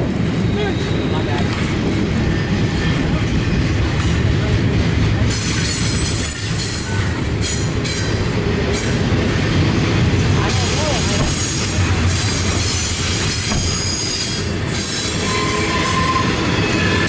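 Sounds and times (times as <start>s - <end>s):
freight train rumbling past: 0.0s - 17.0s
wheels squealing: 10.8s - 17.0s.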